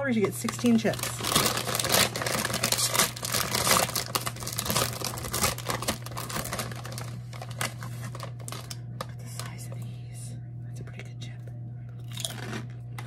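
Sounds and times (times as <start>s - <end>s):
paper bag crinkling: 0.0s - 9.5s.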